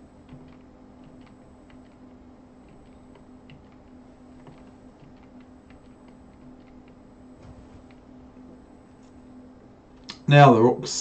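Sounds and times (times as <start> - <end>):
low electrical hum: 0.0 - 11.0
computer keys clicking: 0.2 - 7.1.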